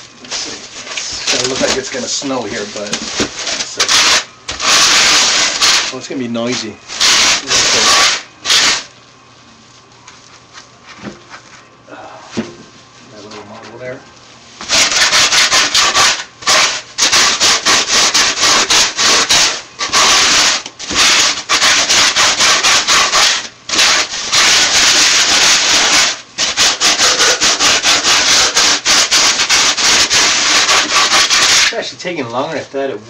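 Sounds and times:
harsh scratchy sanding on foam: 3.5s - 5.9s, 6.6s - 8.8s, 14.6s - 31.8s.

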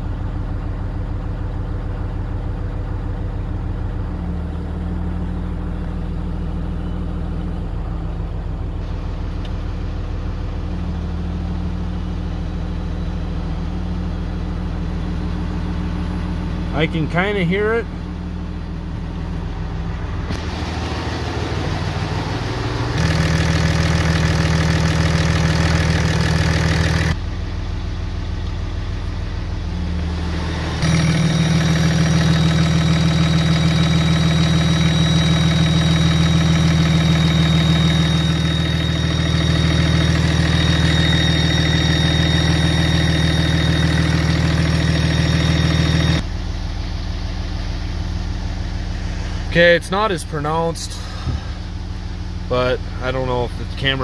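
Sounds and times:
diesel engine idling: 0.0s - 54.0s
faint high squeal: 30.1s - 48.3s.

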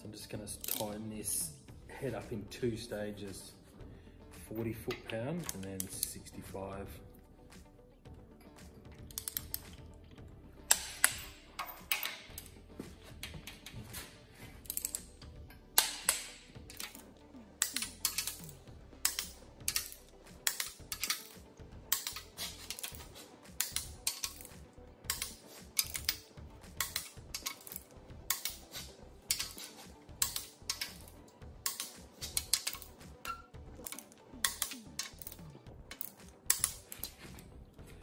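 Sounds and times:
torque wrench ratchet clicking: 17.6s - 37.1s.

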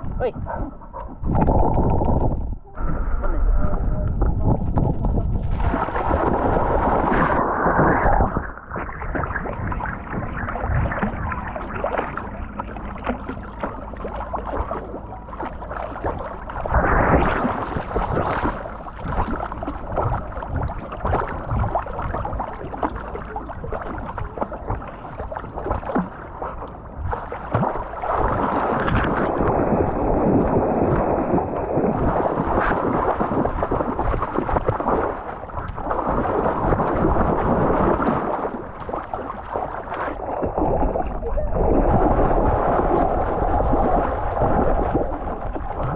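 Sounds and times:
heavy low rumble: 0.0s - 27.4s
water sloshing and splashing: 0.0s - 45.9s.

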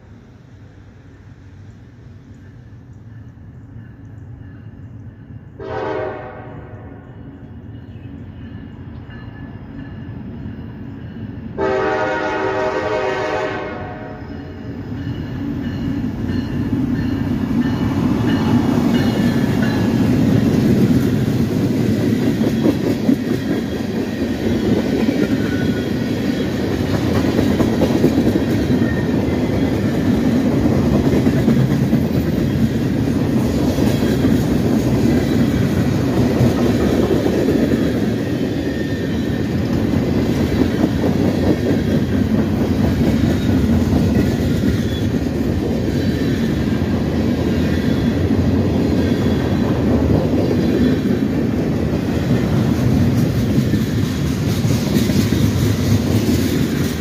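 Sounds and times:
train rumble and wheel clatter: 0.0s - 57.0s
locomotive air horn blasts: 5.6s - 7.0s, 11.6s - 14.2s.

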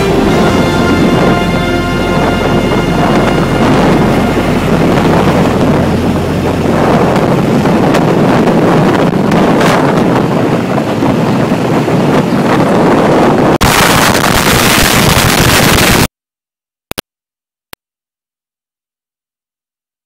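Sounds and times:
wind buffeting microphone: 0.0s - 15.8s.

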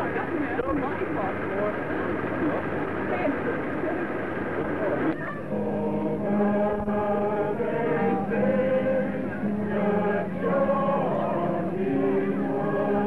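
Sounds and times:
group singing a slow hymn: 5.5s - 13.0s.

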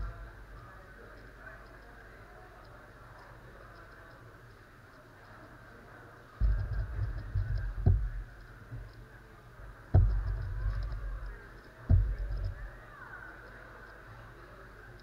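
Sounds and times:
puzzle cube knocking: 6.4s - 8.3s, 10.0s - 11.3s, 11.9s - 12.7s.

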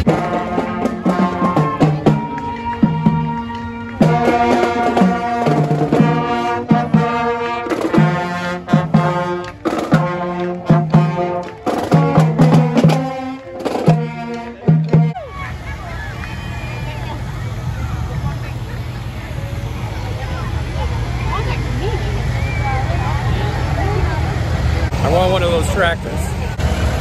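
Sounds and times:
low brass short repeated notes: 0.0s - 15.2s
drums: 0.0s - 27.0s
marching band playing: 0.0s - 27.0s.

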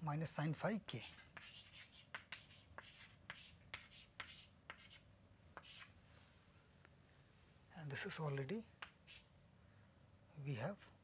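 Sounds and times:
chalk scratching on chalkboard: 0.9s - 6.0s, 8.8s - 9.3s
chalk tapping on board: 1.0s - 5.9s, 8.4s - 9.3s.

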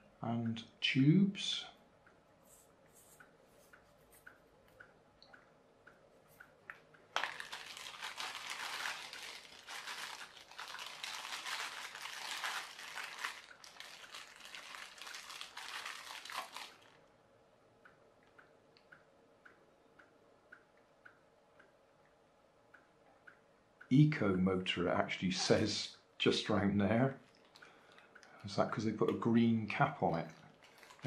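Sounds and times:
plastic bag crinkling: 7.1s - 17.0s, 27.2s - 28.6s, 30.5s - 31.0s.

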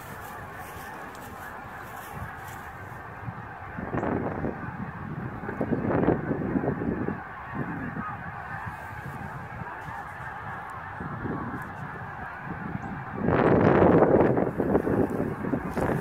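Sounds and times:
geese honking: 0.0s - 16.0s
wind buffeting microphone: 0.0s - 16.0s.

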